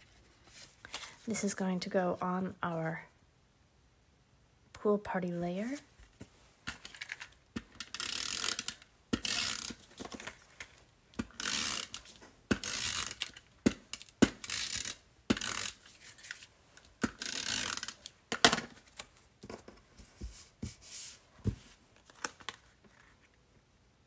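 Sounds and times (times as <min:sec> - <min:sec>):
tape runner rasping zip: 0:07.8 - 0:09.8, 0:11.3 - 0:16.3, 0:17.0 - 0:18.1.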